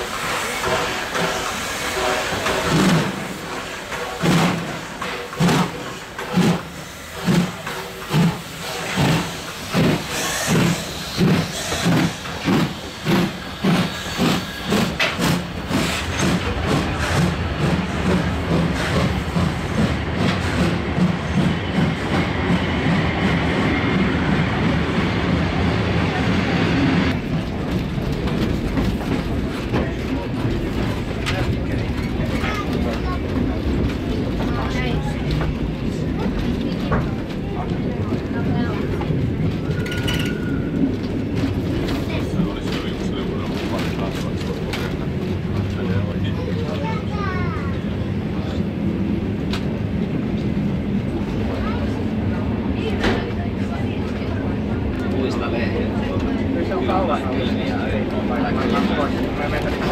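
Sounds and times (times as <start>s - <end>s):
steam locomotive exhaust chuffs: 0.0s - 27.5s
train running noise inside coach: 0.0s - 59.9s.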